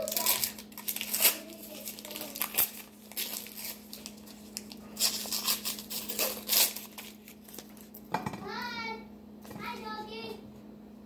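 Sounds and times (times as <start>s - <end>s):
paper wrappers crinkling: 0.0s - 8.0s.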